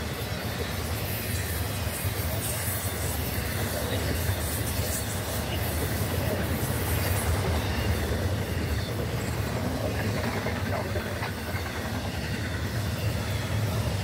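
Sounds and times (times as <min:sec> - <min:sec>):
freight train rumbling over rails: 0:00.0 - 0:14.0
wheels clattering: 0:05.7 - 0:14.0.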